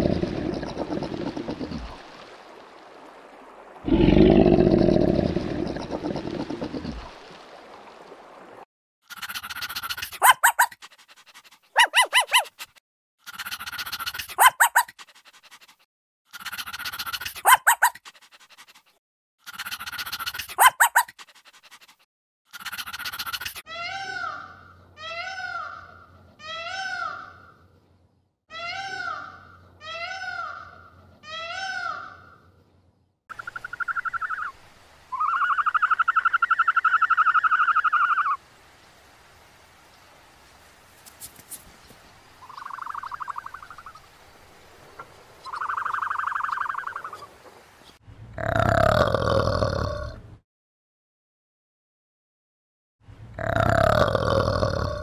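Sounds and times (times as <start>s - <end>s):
small dog barking: 10.1s - 10.8s, 11.7s - 12.6s, 14.3s - 15.0s, 17.4s - 18.0s, 20.5s - 21.1s
peacock calling: 33.3s - 38.4s, 42.4s - 44.1s, 44.9s - 47.7s.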